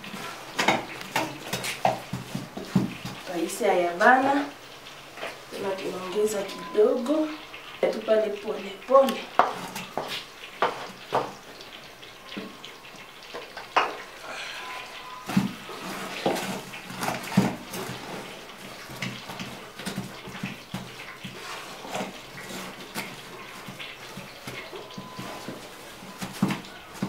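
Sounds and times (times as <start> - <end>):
wooden stick stirring thick porridge: 0.0 - 3.3, 15.3 - 27.0.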